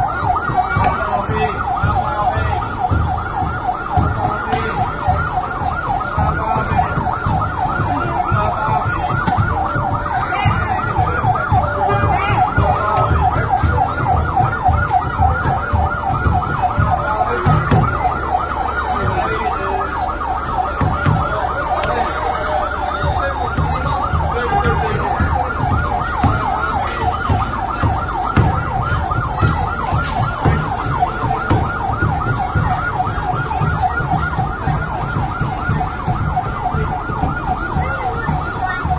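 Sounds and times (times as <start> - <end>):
fire truck siren yelping: 0.0 - 38.9.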